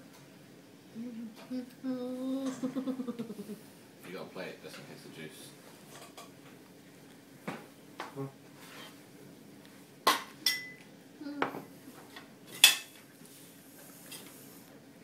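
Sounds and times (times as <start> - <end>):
cutlery and crockery clinking: 10.1 - 10.8, 12.5 - 13.0.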